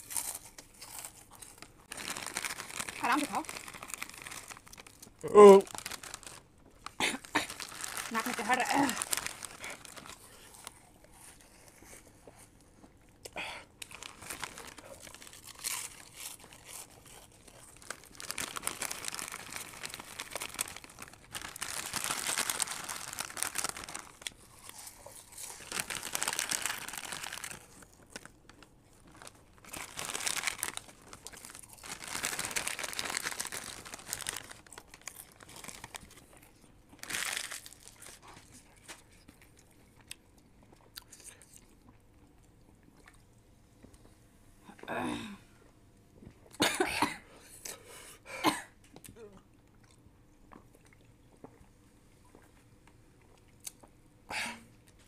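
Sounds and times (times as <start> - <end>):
foil snack packets crinkling: 0.0 - 11.4, 13.8 - 39.6.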